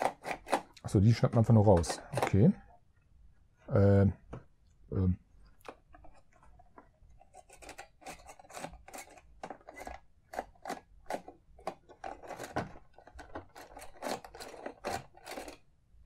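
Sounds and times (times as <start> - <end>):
plastic toy clicking and rattling: 0.0 - 0.9, 7.2 - 15.7
plastic scraping rubs: 5.6 - 15.6.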